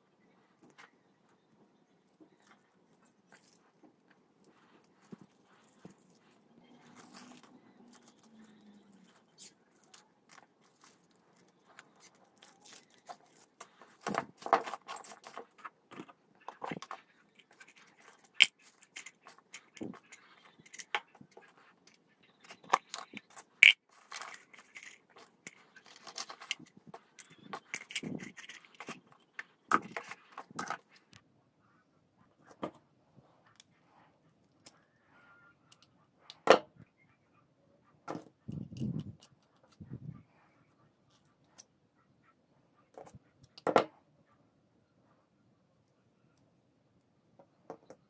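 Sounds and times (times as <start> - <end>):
plastic and foil scrap handled: 4.5 - 21.8, 22.4 - 31.0.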